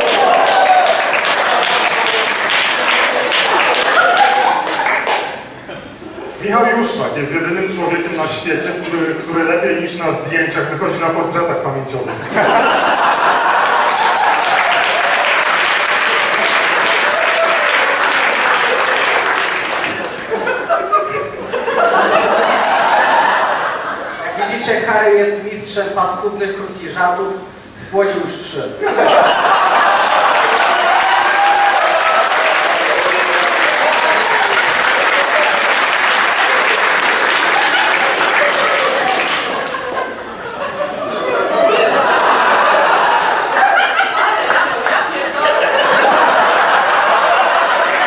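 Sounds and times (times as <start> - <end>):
audience applauding: 0.0 - 5.6, 12.4 - 20.8, 29.0 - 48.0
crowd voices: 0.0 - 10.3, 28.9 - 48.0.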